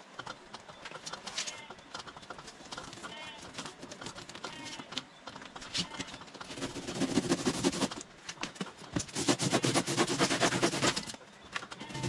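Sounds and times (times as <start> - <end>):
handsaw cutting foam: 6.4 - 8.0, 9.0 - 11.2.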